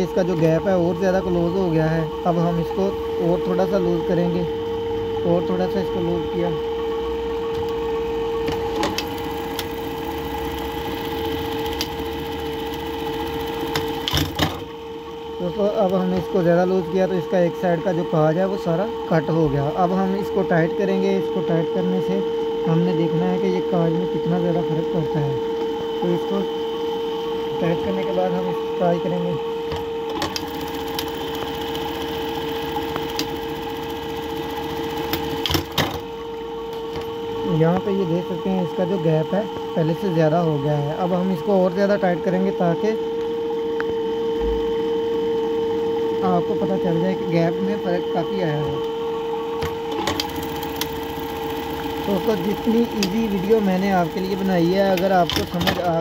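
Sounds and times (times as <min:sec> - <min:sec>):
sewing machine running: 0:08.4 - 0:14.8, 0:29.7 - 0:36.3, 0:49.6 - 0:56.0.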